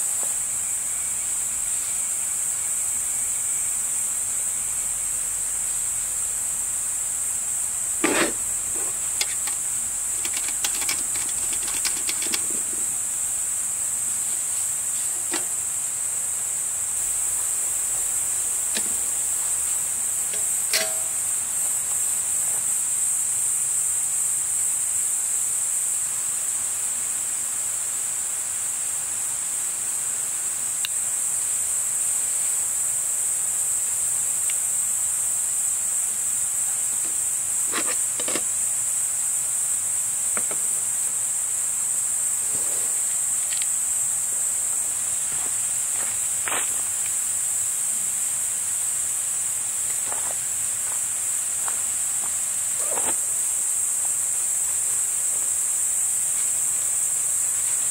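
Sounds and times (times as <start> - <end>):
crickets chirring: 0.0 - 57.9
sharp clicks and light knocks: 9.2 - 9.6, 10.2 - 12.7.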